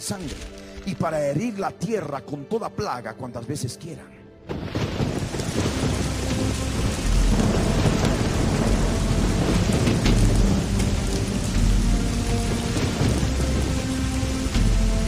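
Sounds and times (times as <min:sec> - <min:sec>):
heavy rain: 0:04.5 - 0:15.0
rolling thunder: 0:04.5 - 0:15.0.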